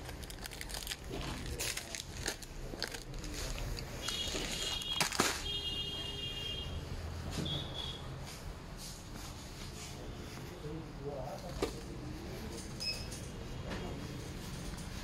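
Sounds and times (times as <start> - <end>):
plastic wrappers crinkling: 0.0 - 5.6.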